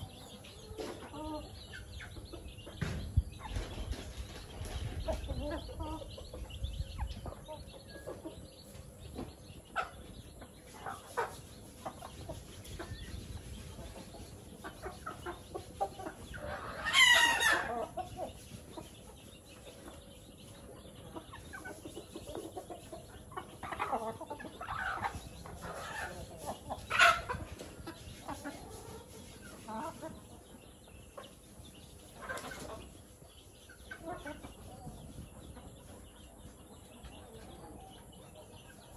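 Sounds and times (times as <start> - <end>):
chickens clucking: 0.0 - 38.9.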